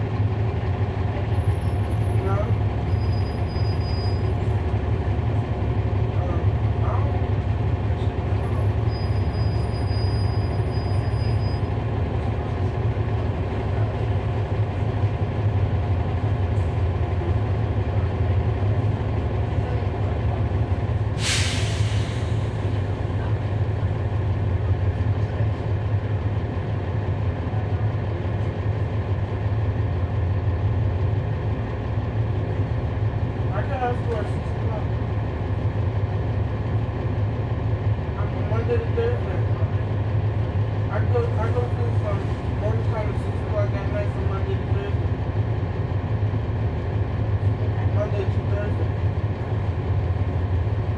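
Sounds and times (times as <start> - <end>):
bus diesel engine droning: 0.0 - 50.9
air brakes hissing: 21.1 - 22.8.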